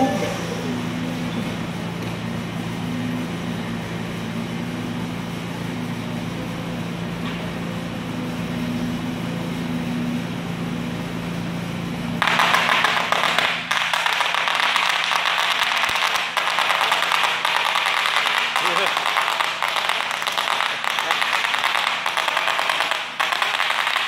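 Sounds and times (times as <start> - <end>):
forklift humming: 0.0 - 24.0
bubble wrap popping: 12.2 - 24.0.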